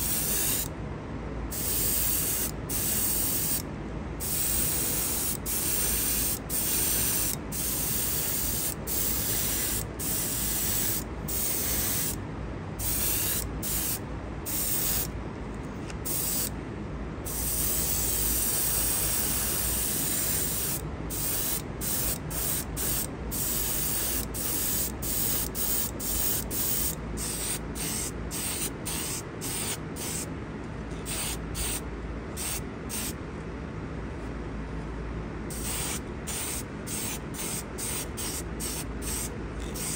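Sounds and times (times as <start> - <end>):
airbrush spraying hiss: 0.0 - 0.7, 1.5 - 3.6, 4.2 - 12.2, 12.8 - 15.1, 16.0 - 16.5, 17.3 - 30.3, 31.0 - 31.8, 32.4 - 33.2, 35.5 - 39.9.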